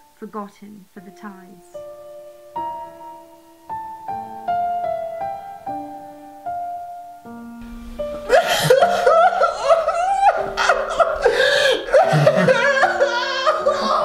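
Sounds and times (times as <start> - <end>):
held piano notes: 1.0 - 14.0
man sobbing and wailing: 8.2 - 14.0.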